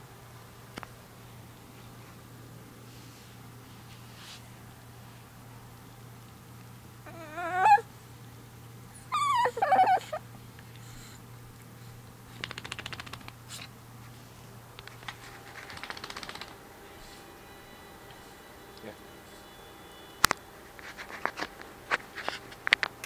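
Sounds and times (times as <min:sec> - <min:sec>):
puppy whining: 0:07.0 - 0:07.9, 0:08.9 - 0:11.2
soft rapid fluttering sounds: 0:12.3 - 0:13.7, 0:14.8 - 0:16.7.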